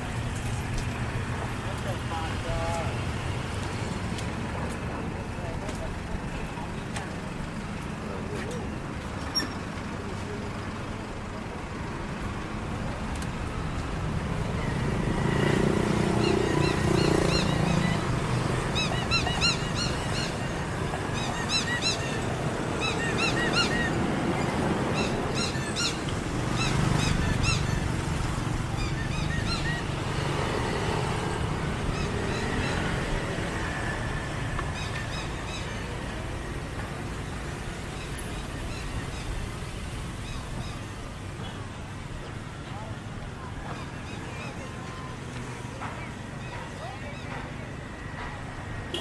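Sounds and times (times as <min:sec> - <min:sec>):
traffic noise: 0:00.0 - 0:49.0
vehicles passing: 0:00.0 - 0:49.0
small birds chirping: 0:14.7 - 0:33.8.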